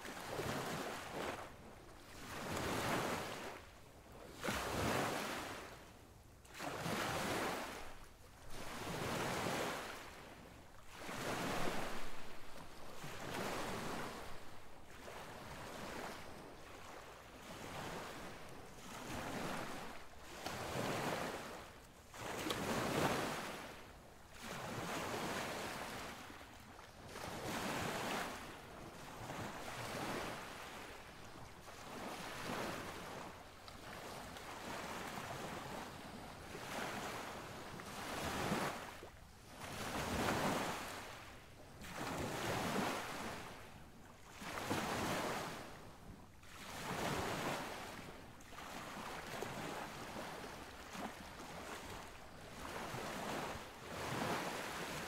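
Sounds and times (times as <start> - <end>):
wind: 0.0 - 55.0.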